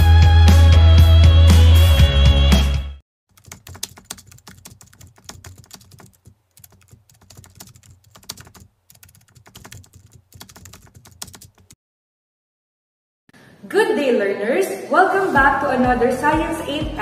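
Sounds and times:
rapid keyboard typing: 3.3s - 11.8s.

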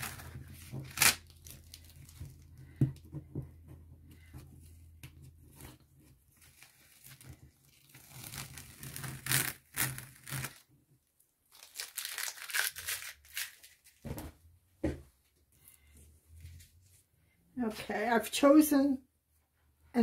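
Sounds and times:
masking tape peeled off paper: 0.0s - 2.2s, 6.4s - 10.6s.

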